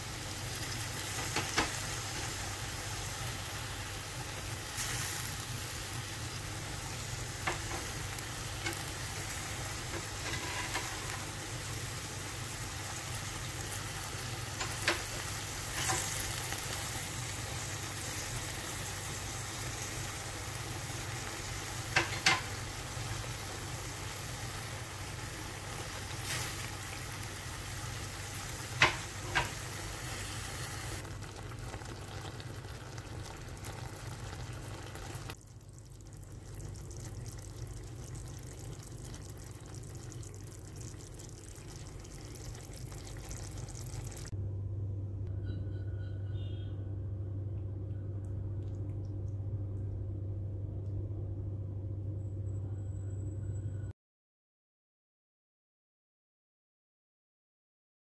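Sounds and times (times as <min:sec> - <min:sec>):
food sizzling in a metal pan: 0:00.0 - 0:35.4
steady low hum: 0:00.0 - 0:53.9.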